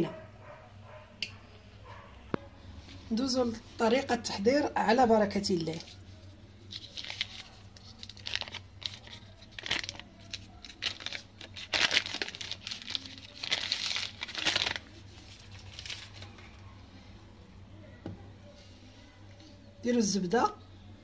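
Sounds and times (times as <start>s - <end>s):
wrapper crinkling: 5.6s - 16.6s.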